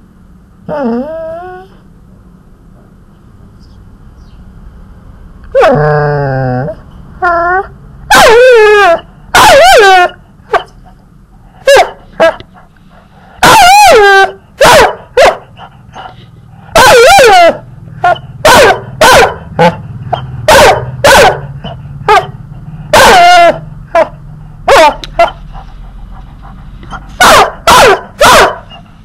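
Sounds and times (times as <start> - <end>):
dog whine-howling: 0.7 - 1.8, 5.5 - 10.7, 13.4 - 15.3, 16.7 - 21.2, 22.9 - 24.1
dog yipping and barking: 7.2 - 10.7, 11.6 - 12.4, 13.4 - 16.1, 16.7 - 25.4, 26.9 - 28.9.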